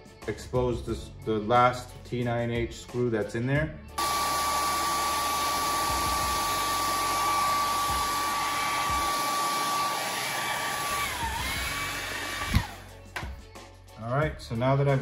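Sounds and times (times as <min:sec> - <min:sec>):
hot-air blower running: 0:04.0 - 0:12.9
blower switch click: 0:12.4 - 0:12.8.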